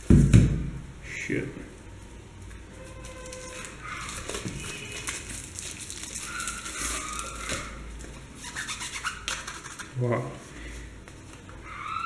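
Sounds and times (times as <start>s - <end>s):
paper wrapping tearing and crinkling: 2.9s - 10.0s.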